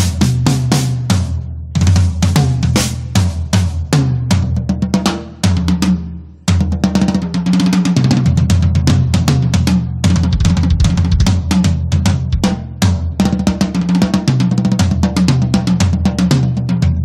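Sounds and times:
full band playing: 0.0 - 6.0, 8.6 - 17.0
drum kit hits and fills: 0.0 - 17.0
low bass notes: 16.6 - 17.0.

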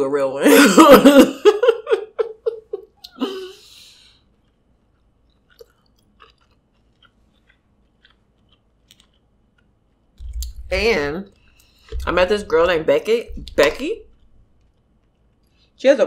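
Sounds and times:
woman laughing: 0.4 - 3.6
faint chewing clicks: 3.8 - 12.1, 13.4 - 15.8.

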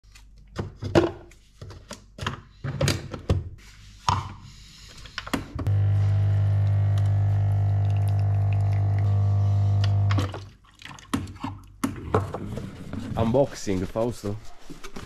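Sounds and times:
espresso machine pump buzzing: 5.6 - 10.3.

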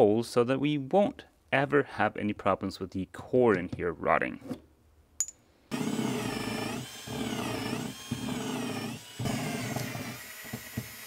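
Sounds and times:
power drill boring: 5.7 - 11.0.

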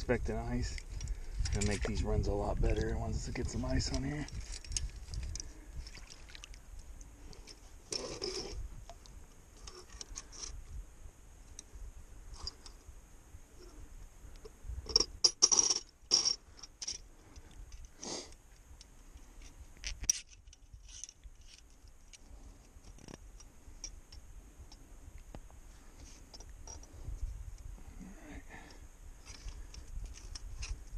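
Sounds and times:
metal trap clicks and scrapes: 7.4 - 8.6, 14.8 - 17.1, 19.4 - 22.2.

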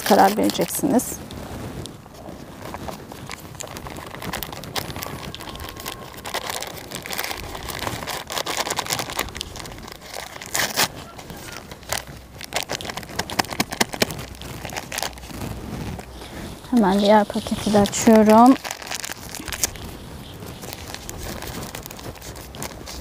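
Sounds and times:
powder packet crinkling: 0.0 - 23.0.

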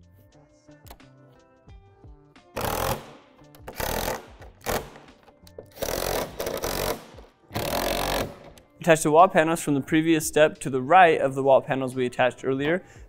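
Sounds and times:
light background music: 0.0 - 13.0
cordless drill driving bolts: 2.6 - 8.6.

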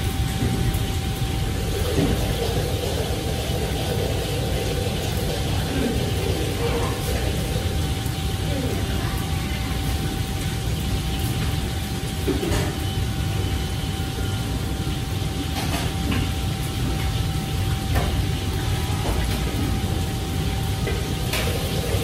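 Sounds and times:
faint steady whine: 0.0 - 22.0
kitchen extraction hood roar: 0.0 - 22.0.

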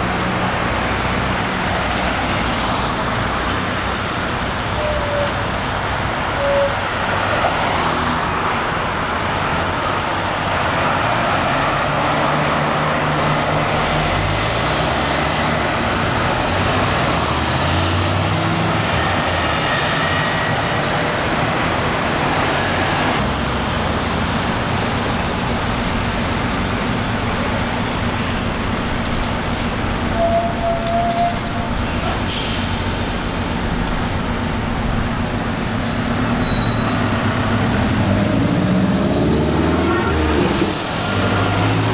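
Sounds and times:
street traffic: 0.0 - 41.9
bus engine revving: 31.8 - 41.9.

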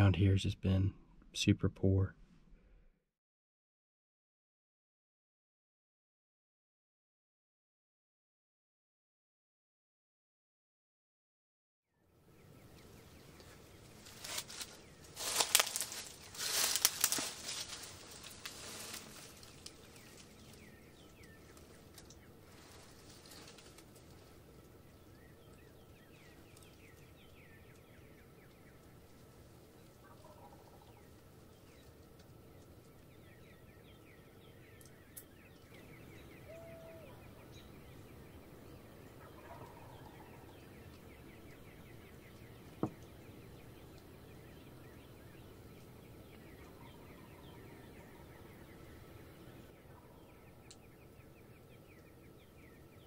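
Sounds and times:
small birds chirping: 12.0 - 53.0
distant turkeys gobbling: 29.8 - 31.2, 39.2 - 40.7.

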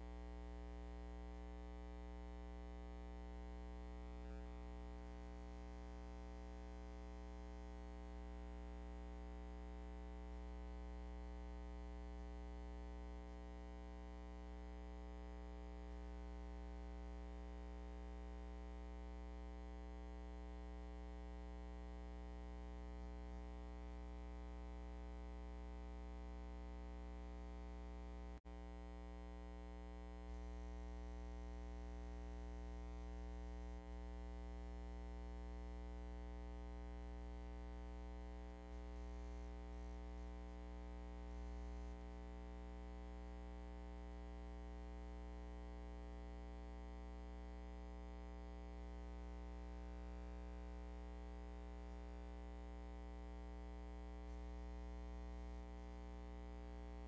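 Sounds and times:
electrical hum: 0.0 - 9.1, 22.0 - 45.1.

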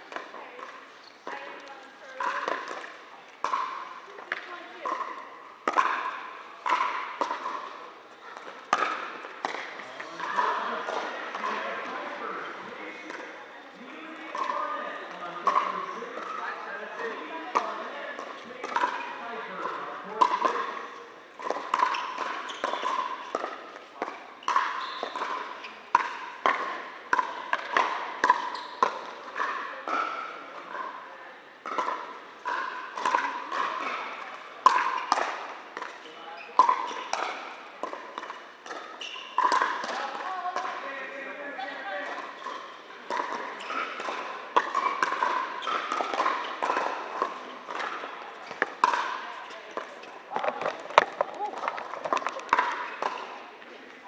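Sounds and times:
paddles hitting plastic ball: 0.0 - 12.2, 14.2 - 30.9, 31.6 - 40.9, 42.0 - 54.0
paddles striking plastic ball: 42.1 - 53.3.

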